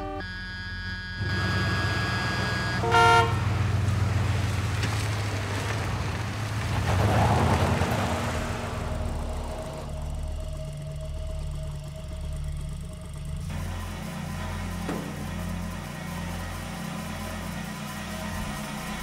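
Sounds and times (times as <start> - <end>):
suv engine running: 0.0 - 19.0
short horn toot: 1.2 - 3.6
suv driving past: 1.2 - 12.6.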